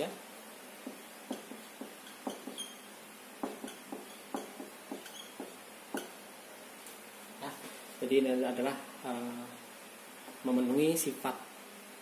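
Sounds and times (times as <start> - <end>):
marker pen tapping on whiteboard: 0.8 - 2.8, 3.4 - 6.2
felt tip squeaks: 2.0 - 2.9, 3.7 - 5.5.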